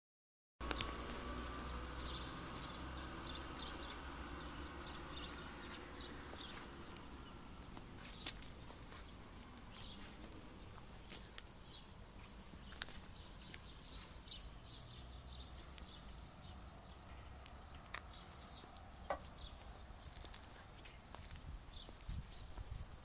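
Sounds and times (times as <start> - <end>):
bird chirps: 0.6 - 12.0, 12.6 - 22.6
footsteps clicking: 6.2 - 11.5, 18.8 - 22.7
wind rumble: 16.8 - 23.0.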